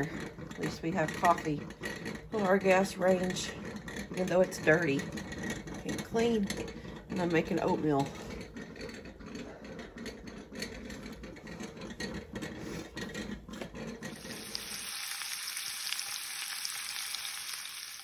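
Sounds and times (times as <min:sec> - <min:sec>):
bacon sizzling in a frying pan: 0:14.1 - 0:18.0.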